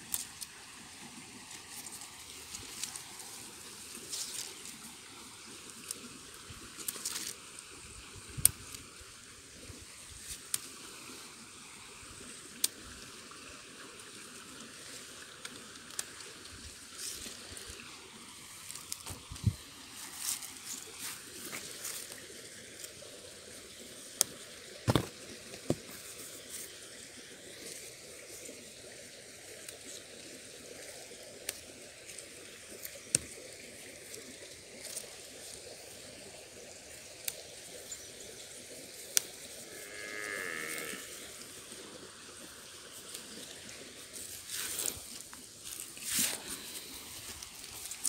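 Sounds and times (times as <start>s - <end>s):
leaves rustling: 0.0s - 48.0s
branches snapping: 18.6s - 22.2s, 24.9s - 25.9s.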